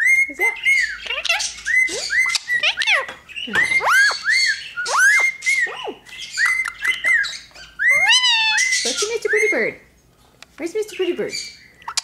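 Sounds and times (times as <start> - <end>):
parrots chirping and squawking: 0.0 - 10.1, 10.8 - 12.0.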